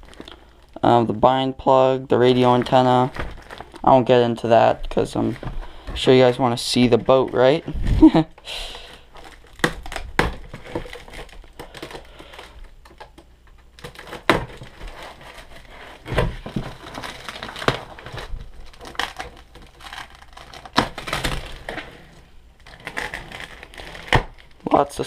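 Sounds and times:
styrofoam scraping and rubbing: 13.8 - 24.9.

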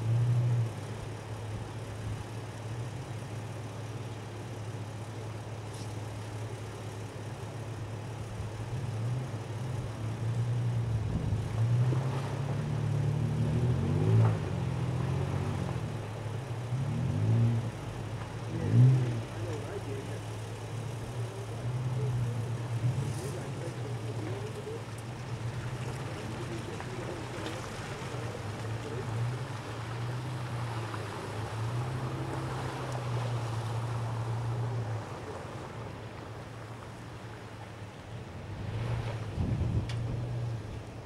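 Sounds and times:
car engine at low revs: 0.0 - 41.0
tyre and wind noise: 38.6 - 40.8.

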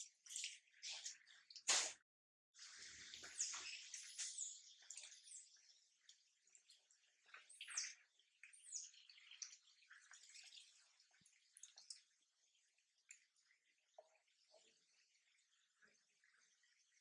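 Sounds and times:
faint high-pitched chirps: 3.2 - 12.1.

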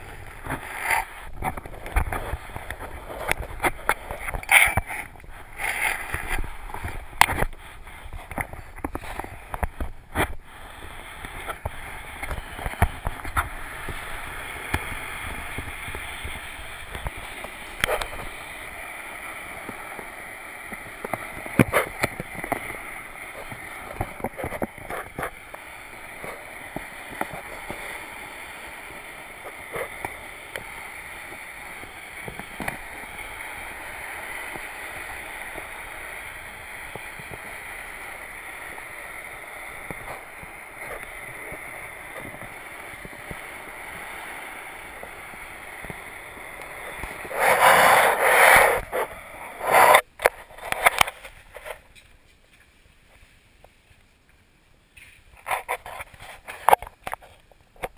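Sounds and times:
mop sliding over wooden floor: 45.0 - 51.7.

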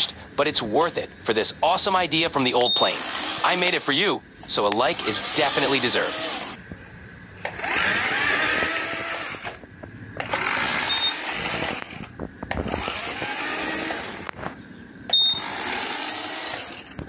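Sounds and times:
electric motor spinning propeller: 2.8 - 4.1, 4.7 - 6.7, 7.4 - 17.0
short high buzzer beep: 10.8 - 11.2, 15.1 - 15.5.

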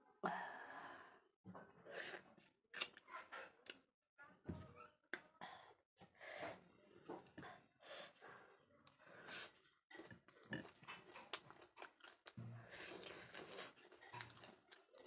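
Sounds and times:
breathing: 0.2 - 2.3, 5.4 - 6.7, 7.4 - 9.7
chewing: 7.1 - 15.0.

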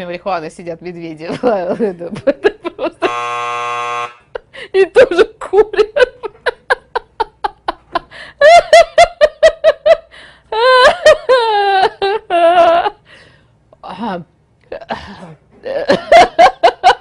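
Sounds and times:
woman laughing: 1.2 - 3.2, 4.3 - 13.1, 14.7 - 17.0.

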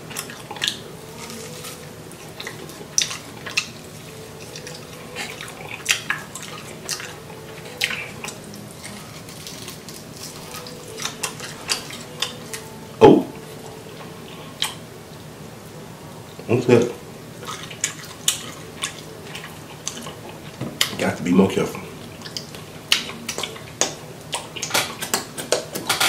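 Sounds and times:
wet chewing and lip-smacking: 2.2 - 12.7, 17.4 - 21.0, 22.1 - 25.9.

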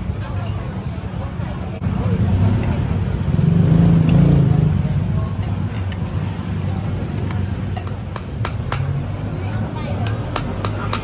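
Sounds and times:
utensils clinking on steel bowl: 0.0 - 0.9, 2.0 - 3.0, 5.3 - 6.2, 7.1 - 8.4.

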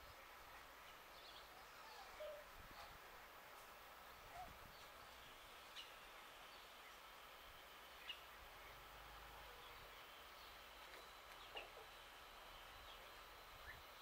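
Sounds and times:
faint bird chirps: 0.8 - 2.9.

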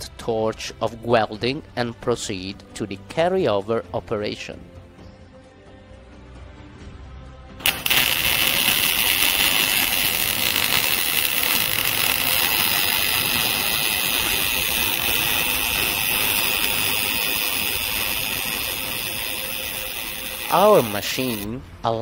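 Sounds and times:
welding arc hiss: 7.6 - 21.5.

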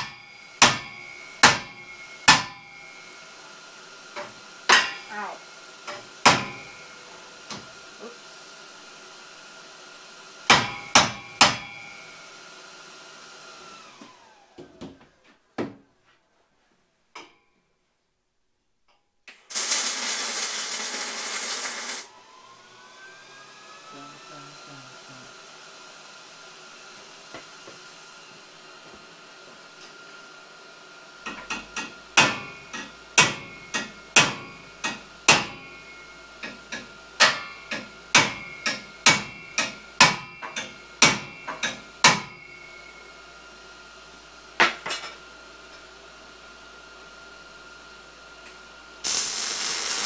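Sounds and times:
hammer striking steel: 0.0 - 2.7, 4.2 - 5.1, 5.9 - 6.8, 10.5 - 11.9, 31.4 - 35.7, 36.4 - 42.4
steady rushing hiss: 49.0 - 50.0.

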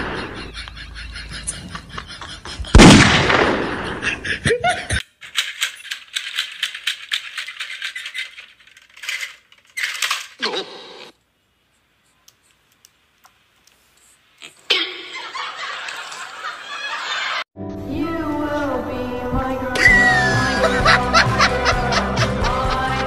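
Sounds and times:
rapid clicking rattle: 5.2 - 10.3.

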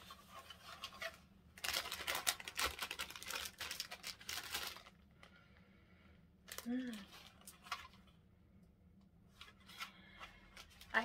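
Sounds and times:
plastic wrapper crinkling: 0.0 - 5.4, 6.4 - 8.0.

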